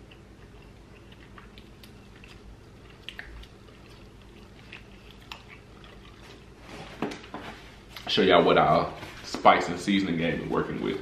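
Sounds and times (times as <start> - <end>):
person chewing food: 0.0 - 8.1
steady low hum: 0.0 - 11.0.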